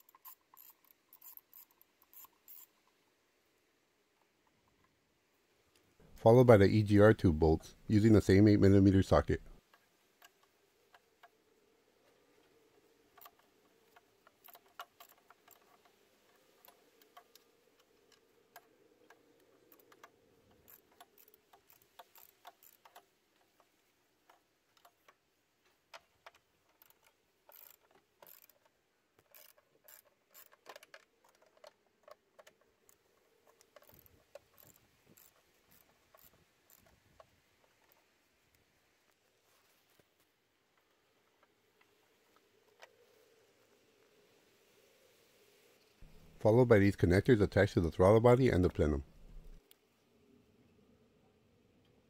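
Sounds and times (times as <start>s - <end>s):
ratchet wrench clicking: 0.0s - 2.7s, 26.8s - 28.6s, 29.3s - 30.6s, 33.7s - 36.9s.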